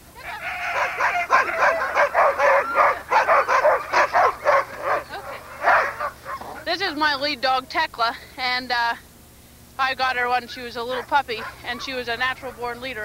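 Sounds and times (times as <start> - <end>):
dogs barking and yipping: 0.2 - 7.2, 10.3 - 13.0.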